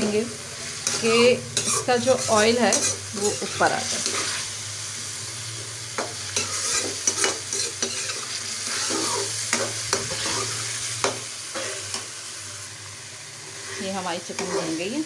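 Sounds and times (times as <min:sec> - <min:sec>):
chicken sizzling in a pan: 0:00.0 - 0:15.0
spatula scraping and knocking pan: 0:00.8 - 0:04.4, 0:06.0 - 0:12.1, 0:13.7 - 0:14.9.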